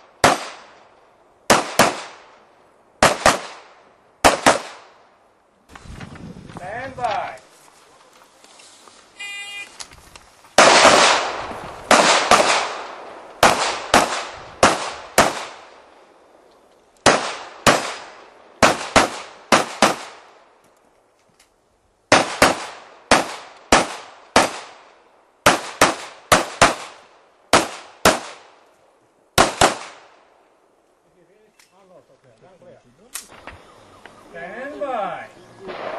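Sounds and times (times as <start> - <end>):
electronic timer beep: 9.2 - 9.7.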